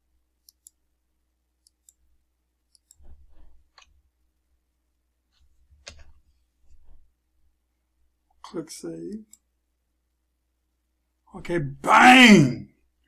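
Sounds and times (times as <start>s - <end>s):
computer mouse clicking: 0.4s - 0.8s, 1.6s - 4.0s, 5.3s - 7.0s.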